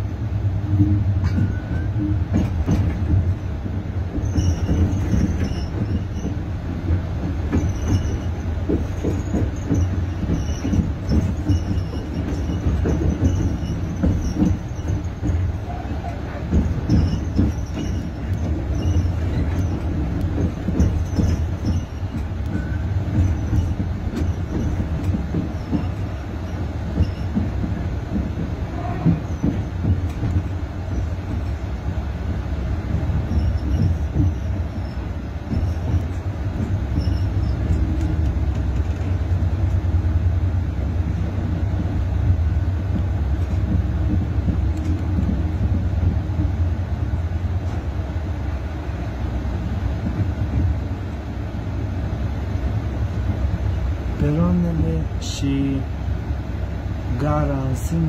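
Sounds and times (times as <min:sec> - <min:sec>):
train wheels rumbling on rails: 0:00.0 - 0:58.0
knocks and rattles: 0:00.7 - 0:39.9, 0:40.9 - 0:48.1
high squeaks: 0:04.2 - 0:06.5, 0:07.5 - 0:27.5, 0:33.2 - 0:36.2, 0:36.8 - 0:38.0.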